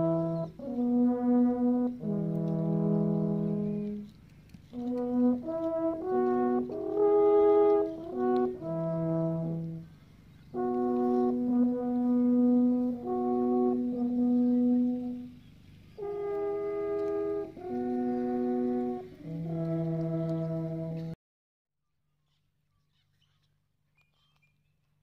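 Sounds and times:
alphorns playing slow melody: 0.0 - 4.2, 4.8 - 9.9, 10.6 - 15.4, 16.0 - 21.2.

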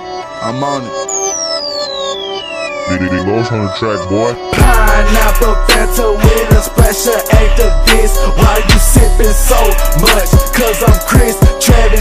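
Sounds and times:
sustained synthesizer chords: 0.1 - 12.0
falling pitch sweep: 1.0 - 3.2
deep bass: 4.6 - 11.0.

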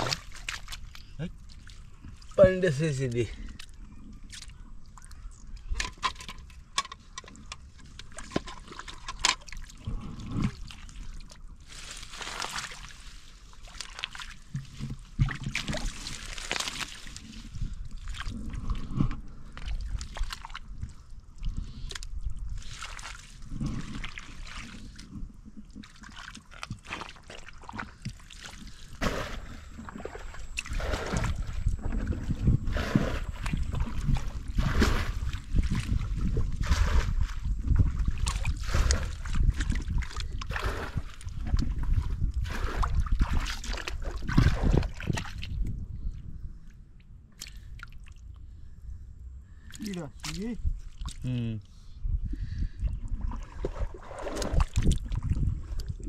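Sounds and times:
hands squelching in wet mud: 0.0 - 2.4, 8.8 - 25.1, 25.7 - 45.7, 53.2 - 56.0
wet clicks: 47.3 - 48.2.

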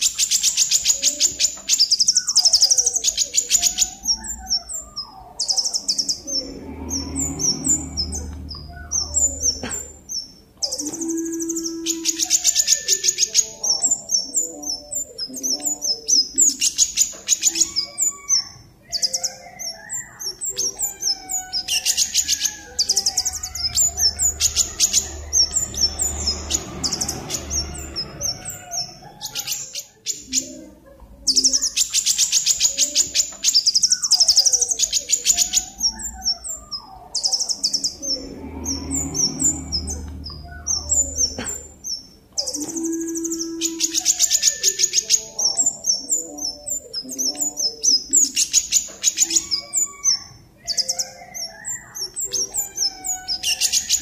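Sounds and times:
faint lower bird calls: 0.0 - 30.6.

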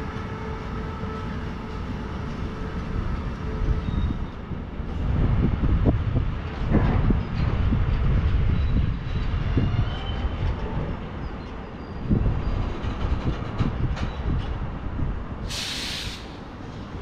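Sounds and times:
train rumbling on track: 0.0 - 17.0
hiss burst: 15.5 - 16.4.

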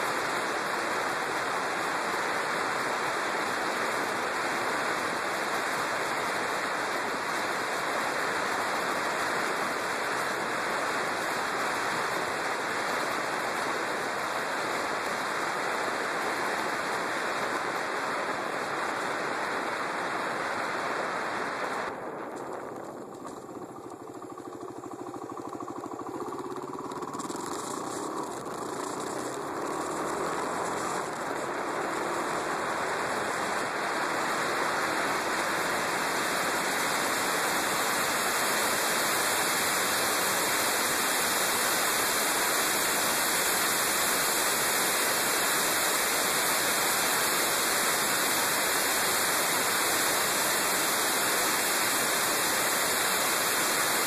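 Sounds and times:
motorcycle engine pulling away: 21.9 - 48.4.

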